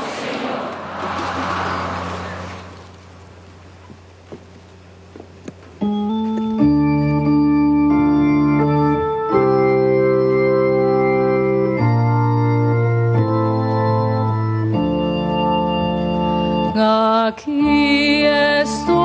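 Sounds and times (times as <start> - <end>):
organ playing held chords: 5.7 - 19.0.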